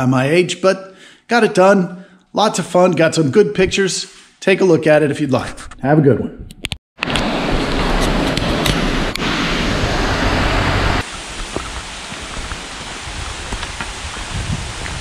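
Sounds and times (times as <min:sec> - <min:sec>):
stream rushing: 0:07.0 - 0:15.0.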